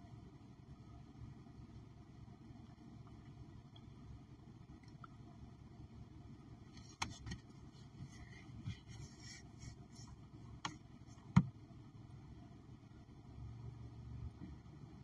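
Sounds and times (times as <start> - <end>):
low background rumble: 0.0 - 15.0.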